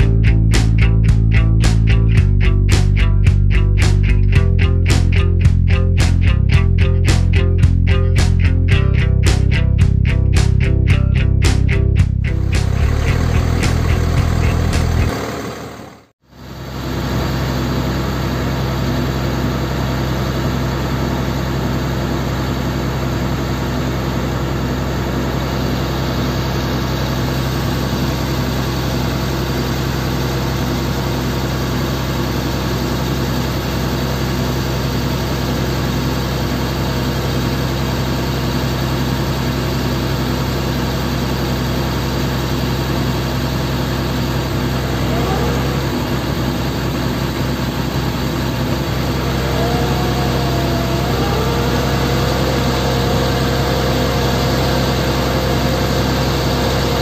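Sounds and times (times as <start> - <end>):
diesel truck engine running: 0.0 - 57.0
mixer drum turning: 12.0 - 15.9
thin wavering whine: 44.5 - 57.0.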